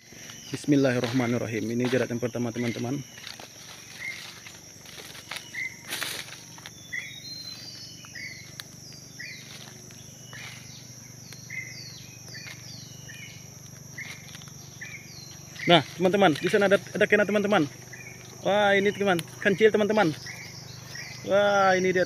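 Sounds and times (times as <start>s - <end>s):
footsteps in dry leaves: 0.0s - 21.8s
insects droning: 0.0s - 22.0s
whistled animal calls: 5.3s - 8.5s.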